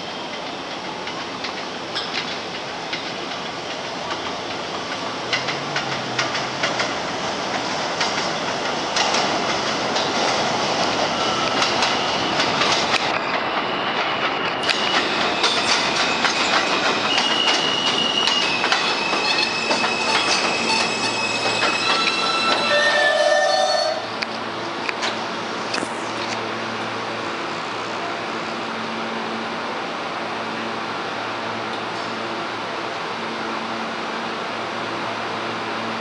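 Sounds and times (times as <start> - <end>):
train wheels clattering over rail joints: 0.3 - 22.8
high-pitched train squeals: 10.9 - 24.2.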